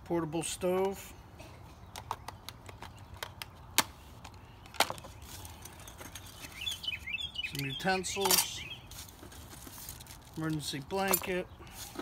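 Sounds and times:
camping gear clicking and knocking: 1.6 - 6.8, 7.6 - 12.0.

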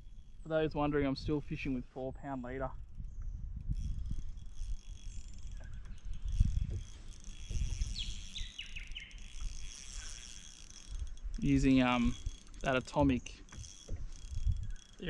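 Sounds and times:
wind rumbling on microphone: 0.0 - 15.0
faint high insect hum: 2.4 - 15.0.

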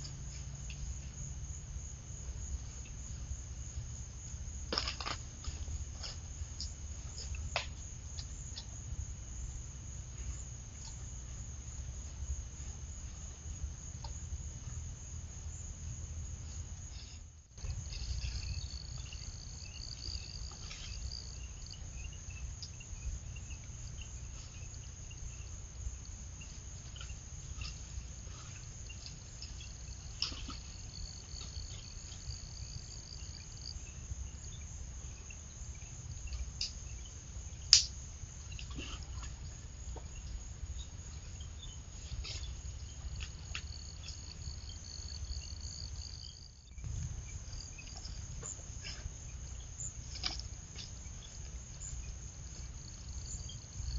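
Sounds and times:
insect high-pitched trill: 0.0 - 53.9.

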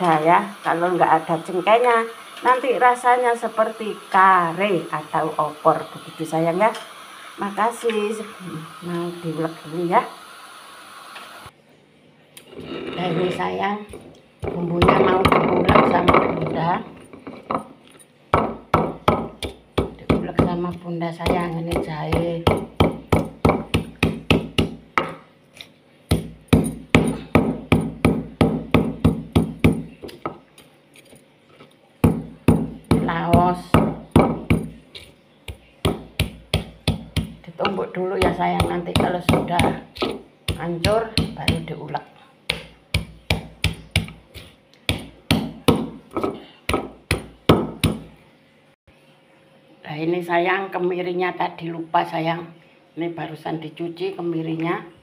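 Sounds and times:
stone pestle pounding in mortar: 13.9 - 17.6, 18.3 - 25.2, 26.1 - 30.4, 32.0 - 41.8, 42.5 - 48.1.

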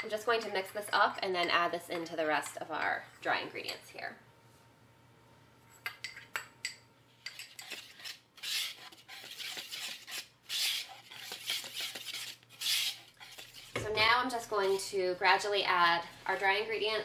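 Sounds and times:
whisk scraping in bowl: 7.3 - 13.8.

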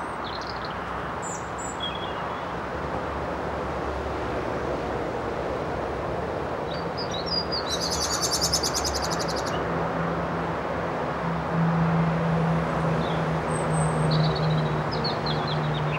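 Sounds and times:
songbird chirping and trilling: 0.2 - 2.5, 6.7 - 9.7.

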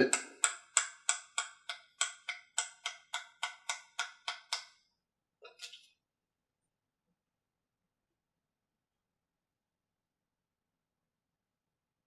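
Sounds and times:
mallet tapping wooden dowel: 0.0 - 4.8.

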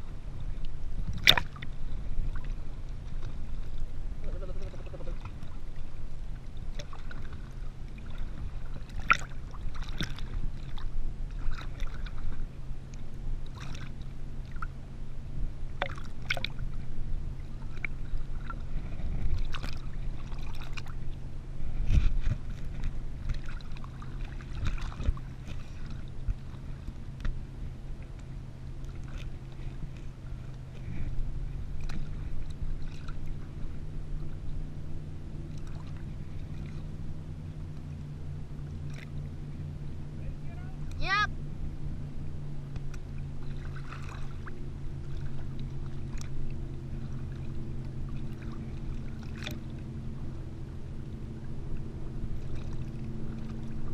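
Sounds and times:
boat engine idling hum: 0.0 - 53.9
water sloshing: 0.0 - 53.9.

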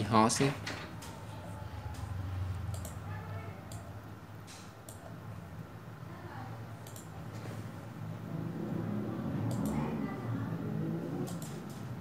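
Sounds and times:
computer mouse clicks: 2.7 - 3.0, 3.7 - 3.9, 4.8 - 5.1, 6.8 - 7.1, 9.4 - 9.8, 11.2 - 11.8.

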